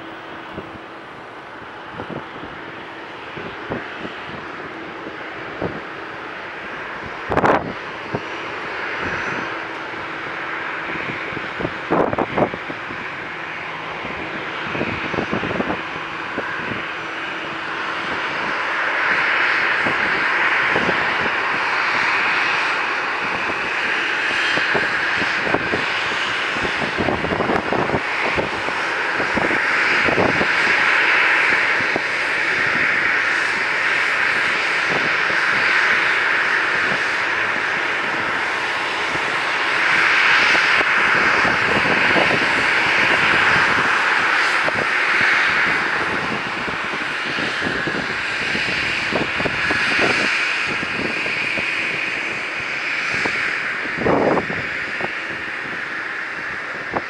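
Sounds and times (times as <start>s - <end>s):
jet engines idling whine: 0.0s - 57.0s.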